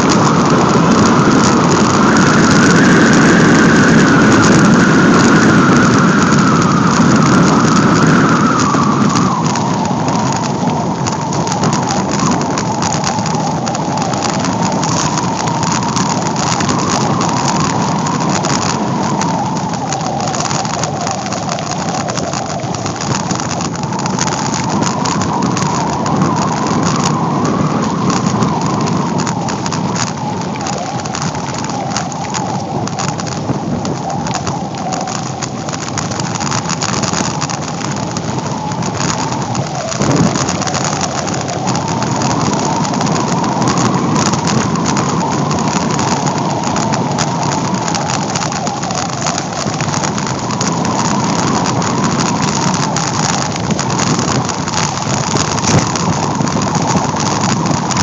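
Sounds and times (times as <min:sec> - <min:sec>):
bicycle rattles and clicks: 0:00.0 - 0:58.0
tyres rolling on dirt road: 0:00.0 - 0:58.0
wind rushing over microphone: 0:00.0 - 0:58.0.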